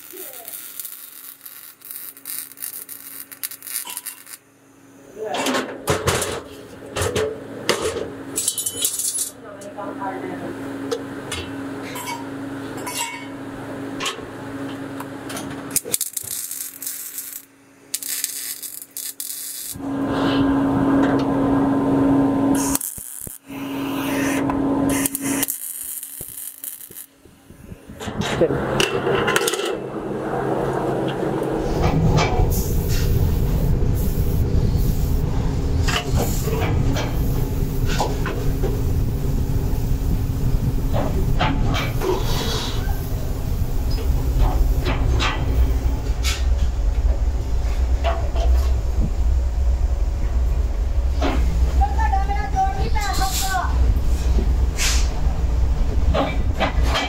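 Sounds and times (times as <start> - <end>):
welding arc crackling and sizzling: 0.0 - 4.5, 15.0 - 27.9, 31.4 - 57.0
loud steady noise with hum: 0.0 - 57.0
steady shop hum: 0.0 - 57.0
workshop machinery rumble: 4.6 - 57.0
paint spray gun hissing: 34.0 - 35.2.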